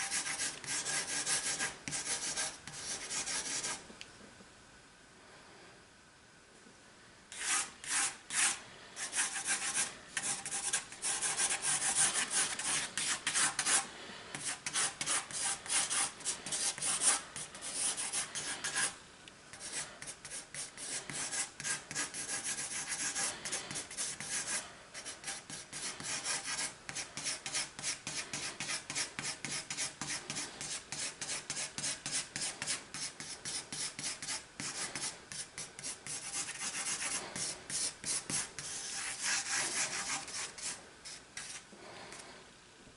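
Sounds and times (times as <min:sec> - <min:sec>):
pencil scribbling on paper: 0:00.0 - 0:03.8, 0:07.4 - 0:41.6.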